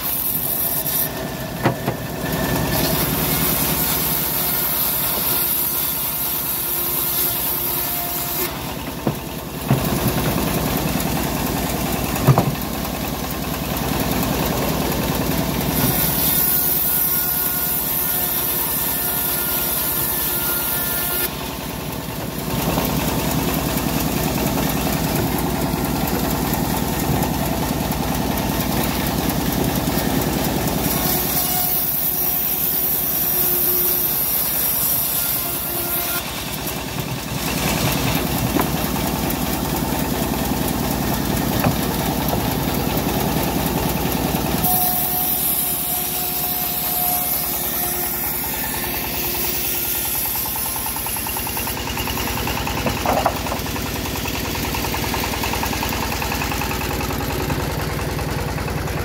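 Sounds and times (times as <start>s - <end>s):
engine running steadily: 0.0s - 59.0s
sharp knocks: 12.2s - 12.6s
saw blade hissing through wood: 44.6s - 53.0s.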